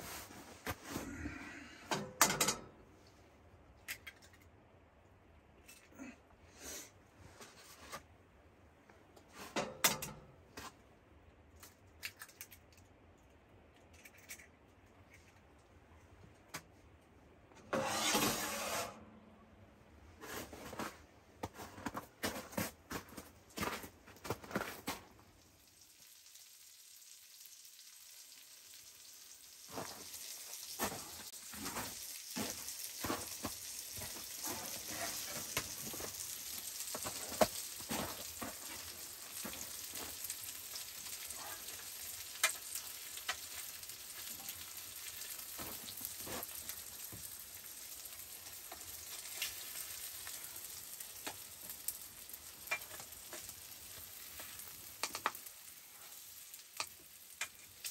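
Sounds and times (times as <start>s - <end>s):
spatula scraping and tapping pan: 17.6s - 19.0s, 52.6s - 55.4s
food sizzling in a frying pan: 25.2s - 57.9s.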